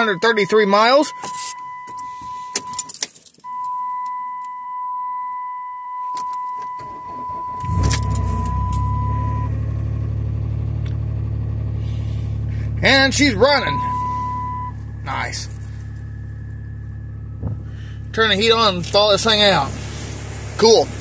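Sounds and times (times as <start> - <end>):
car engine cranking and idling: 0.0 - 4.8, 5.9 - 21.0
keys jangling: 2.5 - 3.5.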